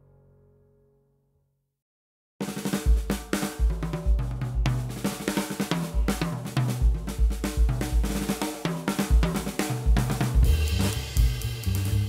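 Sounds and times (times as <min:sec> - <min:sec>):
drum beat over bass line: 0:02.4 - 0:12.0.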